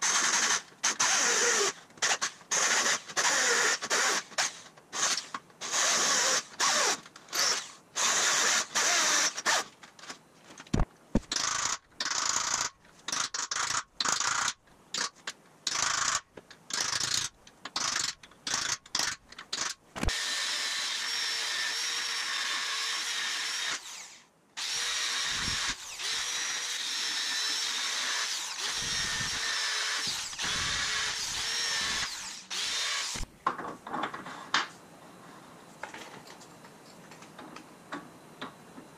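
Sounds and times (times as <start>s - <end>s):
electric drill boring into steel: 20.1s - 33.2s.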